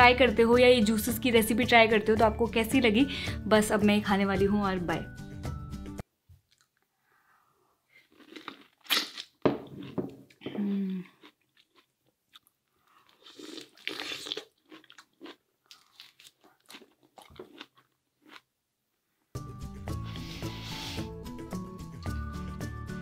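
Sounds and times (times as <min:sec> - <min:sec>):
person eating orange: 0:06.4 - 0:06.9, 0:07.9 - 0:18.5, 0:20.0 - 0:21.2.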